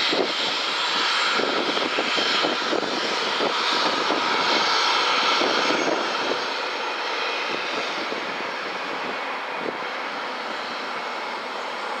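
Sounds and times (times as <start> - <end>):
jet engines at takeoff thrust: 0.0 - 12.0.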